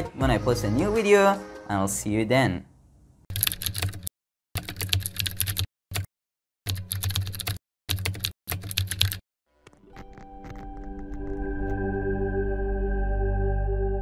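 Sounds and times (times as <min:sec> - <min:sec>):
keyboard typing: 0:03.3 - 0:06.1, 0:06.7 - 0:11.8
music with held tones: 0:09.5 - 0:14.0.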